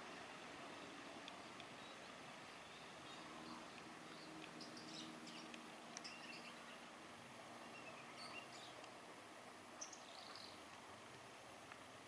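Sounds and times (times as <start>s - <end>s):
faint bird chirps: 1.8s - 6.8s, 7.6s - 8.8s, 9.8s - 10.6s.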